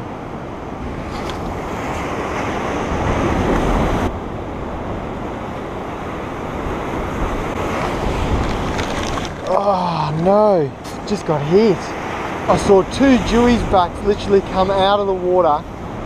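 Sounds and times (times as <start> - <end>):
wind on microphone: 0.0 - 14.8
surf washing against rock wall: 6.6 - 16.0.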